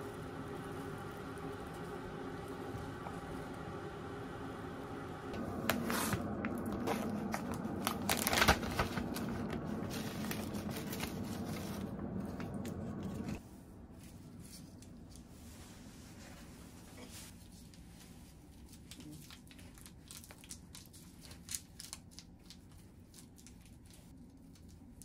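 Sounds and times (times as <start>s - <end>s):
steady low hum: 0.0s - 18.6s
plastic pouch crinkling: 6.0s - 11.8s.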